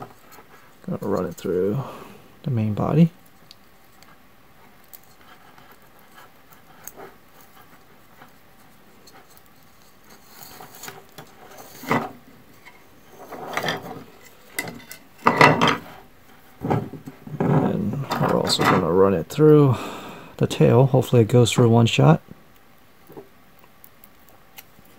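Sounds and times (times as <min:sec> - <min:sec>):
plastic rubbing and scraping: 0:04.0 - 0:19.2.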